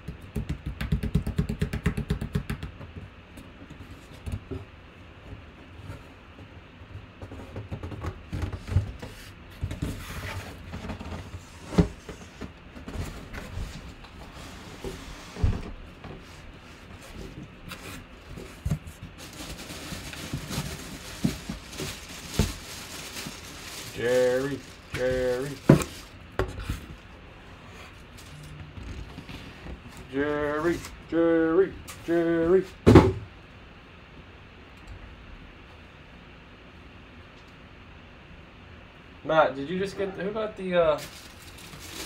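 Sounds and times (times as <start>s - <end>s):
plastic wrapping rustling: 12.2s - 26.2s, 40.9s - 42.0s.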